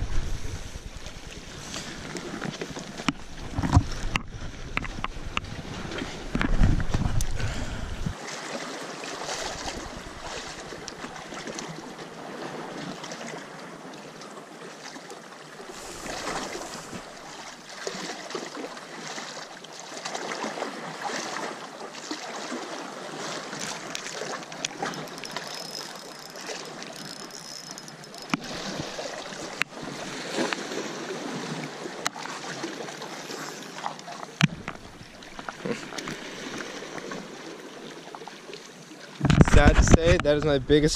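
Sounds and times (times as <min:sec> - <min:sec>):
low rumble on microphone: 0:00.0 - 0:02.1, 0:03.2 - 0:08.2
waves splashing against rocks: 0:00.0 - 0:13.5, 0:15.4 - 0:38.2
sharp clicks: 0:24.6 - 0:29.7.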